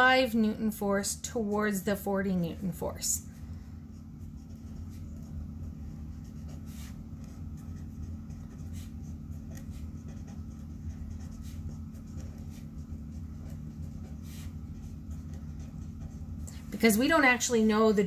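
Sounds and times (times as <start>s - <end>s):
steady low hum: 0.0s - 18.0s
marker pen writing on paper: 3.9s - 16.9s.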